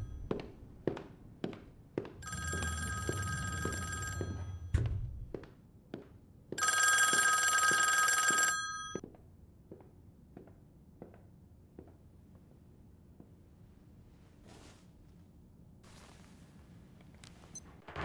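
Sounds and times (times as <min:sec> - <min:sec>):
footsteps on a hard floor: 0:00.2 - 0:06.6, 0:09.0 - 0:12.0
desk telephone bell ringing: 0:02.2 - 0:04.7, 0:06.6 - 0:09.0.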